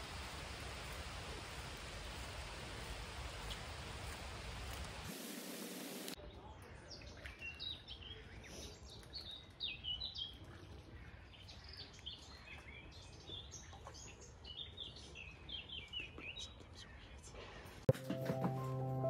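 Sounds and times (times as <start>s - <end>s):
birds chirping and twittering: 6.2s - 17.3s.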